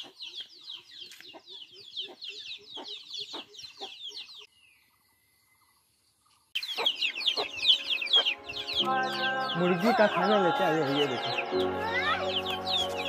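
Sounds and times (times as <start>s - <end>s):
chicks peeping: 0.0s - 4.5s, 6.6s - 13.0s
chicken clucking: 6.6s - 9.4s.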